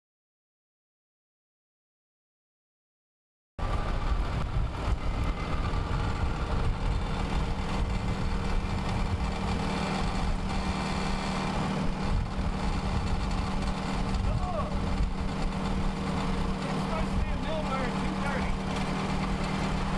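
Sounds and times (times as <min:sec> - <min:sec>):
wind rumble on microphone: 0:03.6 - 0:17.4
engine idling: 0:03.6 - 0:19.9.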